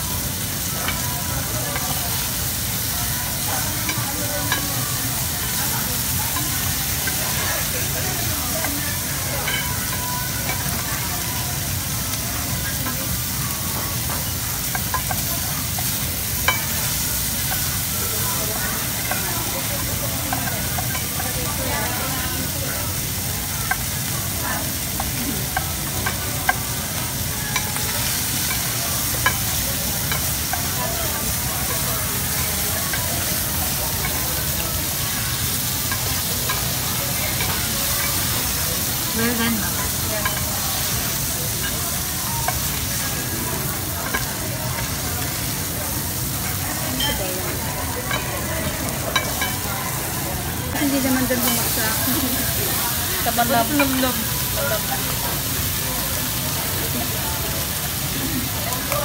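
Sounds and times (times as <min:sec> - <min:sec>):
beef sizzling on grill pan: 0:00.0 - 0:59.0
tongs clicking against pan: 0:44.0 - 0:45.4, 0:49.1 - 0:49.7.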